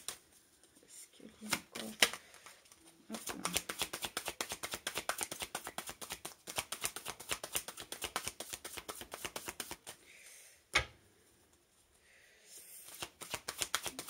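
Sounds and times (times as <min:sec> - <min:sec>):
cards being shuffled: 0:01.3 - 0:10.0, 0:12.8 - 0:14.0.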